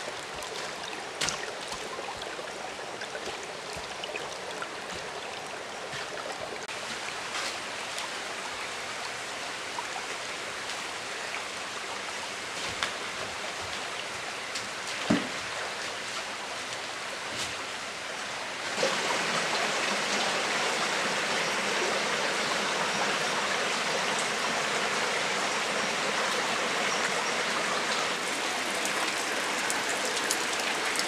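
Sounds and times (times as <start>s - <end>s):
stream running over rocks: 0.0s - 31.0s.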